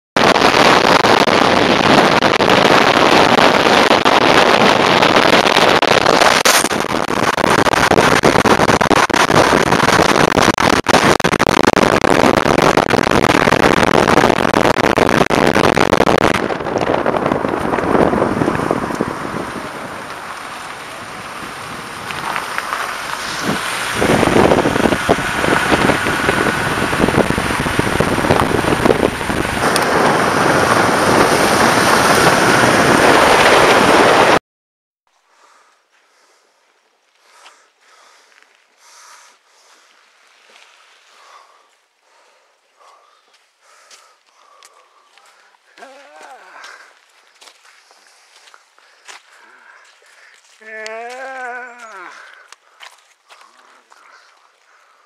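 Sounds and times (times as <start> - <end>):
tyre and road noise: 0.2 - 34.4, 35.3 - 55.0
wind rushing over microphone: 0.2 - 34.4.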